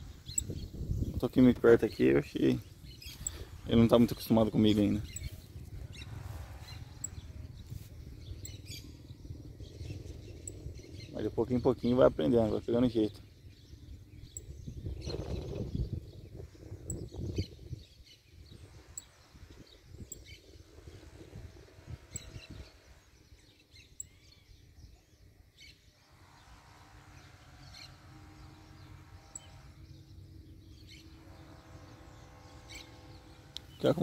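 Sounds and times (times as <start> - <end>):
low rumble: 0.0 - 17.1
faint steady hum: 0.0 - 34.0
songbirds chirping: 0.0 - 34.0.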